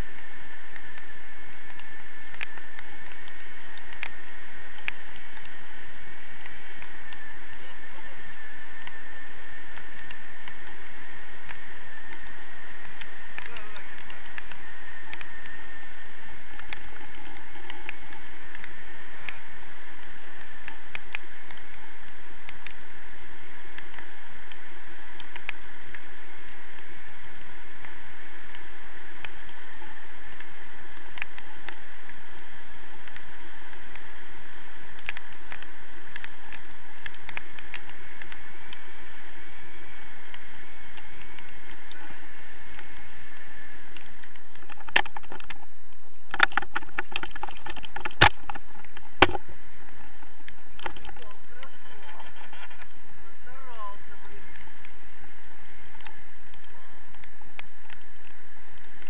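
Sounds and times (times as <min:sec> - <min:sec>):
sharp clicks and knocks: 0:46.3 - 0:49.4.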